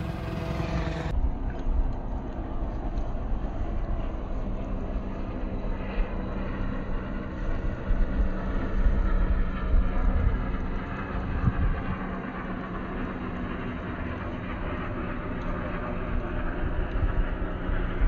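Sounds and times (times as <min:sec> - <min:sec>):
low engine drone: 0:00.0 - 0:18.0
wind gusting on microphone: 0:07.5 - 0:12.5.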